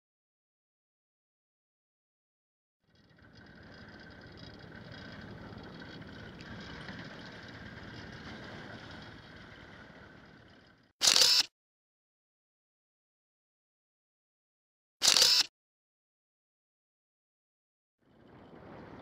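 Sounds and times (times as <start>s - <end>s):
boat engine idling: 2.8s - 10.9s.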